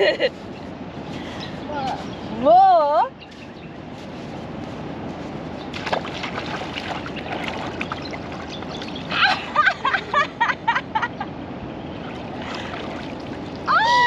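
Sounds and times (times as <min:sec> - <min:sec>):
steady outdoor wash: 0:00.0 - 0:14.0
feet splashing in shallow water: 0:05.6 - 0:09.5, 0:12.0 - 0:14.0.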